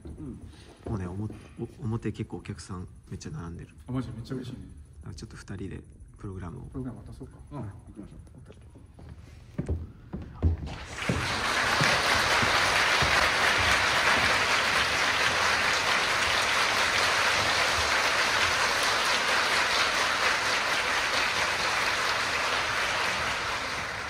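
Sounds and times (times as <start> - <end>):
audience applauding: 10.6 - 24.0.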